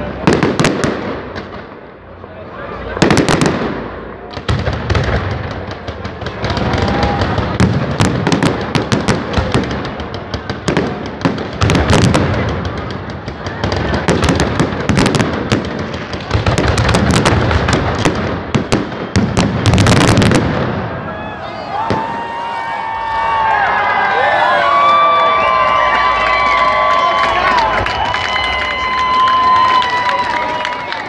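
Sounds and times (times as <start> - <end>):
fireworks bursting with sharp bangs: 0.0 - 23.0.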